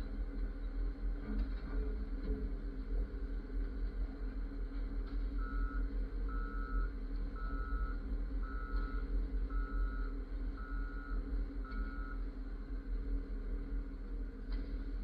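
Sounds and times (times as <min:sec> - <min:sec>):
diesel engine running: 0:00.0 - 0:15.0
back-up alarm beeping: 0:05.4 - 0:12.2.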